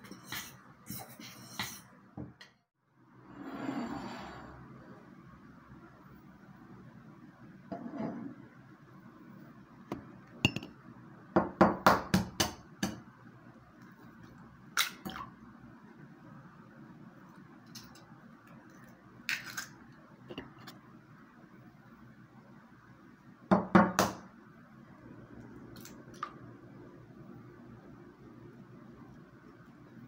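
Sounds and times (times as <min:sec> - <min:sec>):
egg breaking into ceramic bowl: 0:19.3 - 0:19.8.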